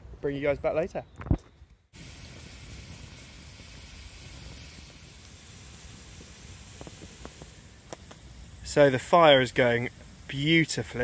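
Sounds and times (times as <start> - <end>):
fire popping: 1.2 - 11.0
campfire hissing: 1.9 - 11.0.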